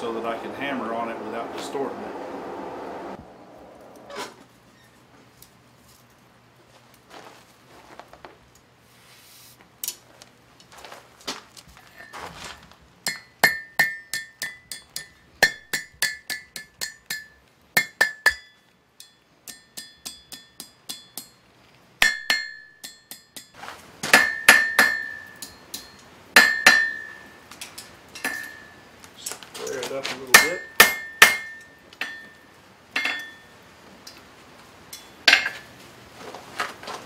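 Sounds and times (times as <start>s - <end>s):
hammer striking hot iron on anvil: 13.0s - 21.4s, 22.0s - 28.8s, 30.3s - 32.4s, 33.0s - 33.5s, 34.9s - 35.7s
anvil ringing: 13.1s - 21.4s, 24.2s - 27.4s, 28.2s - 28.8s, 30.3s - 32.4s, 33.0s - 33.5s.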